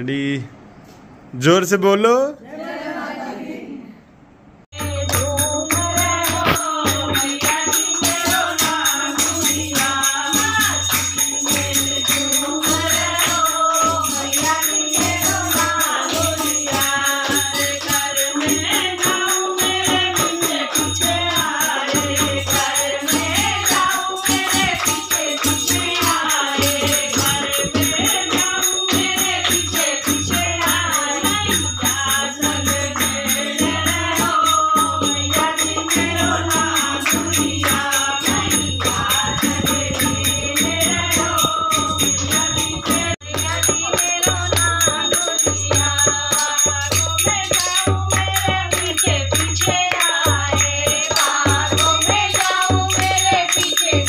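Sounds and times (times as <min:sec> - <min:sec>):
women singing together: 0:02.4 - 0:04.0, 0:04.7 - 0:54.0
hand drum beat: 0:04.8 - 0:13.4, 0:14.4 - 0:46.2
hand clapping: 0:05.1 - 0:06.8, 0:51.1 - 0:54.0.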